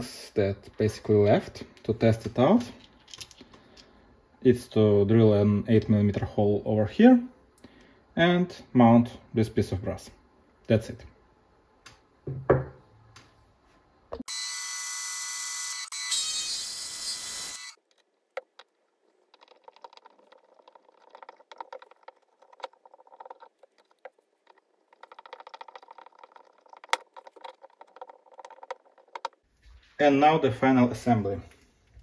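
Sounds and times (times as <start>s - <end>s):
electric drill whining: 14.3s - 17.8s
tap wrench scraping and clicking: 19.3s - 29.4s.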